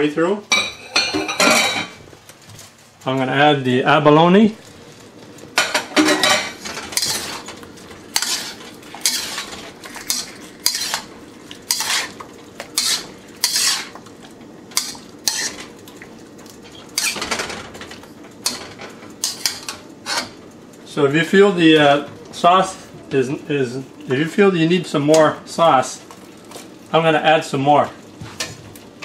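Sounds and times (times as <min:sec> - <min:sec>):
faint sizzle: 0:00.0 - 0:29.0
spatula scraping a wok: 0:06.4 - 0:07.5, 0:08.1 - 0:11.1, 0:11.7 - 0:14.0, 0:14.8 - 0:15.7, 0:17.0 - 0:17.3, 0:18.4 - 0:20.4.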